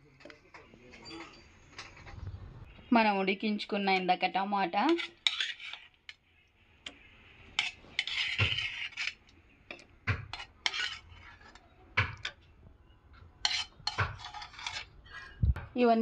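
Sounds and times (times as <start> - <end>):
metal spoon scraping and clinking: 4.9 - 6.2, 7.5 - 12.4, 13.4 - 15.4.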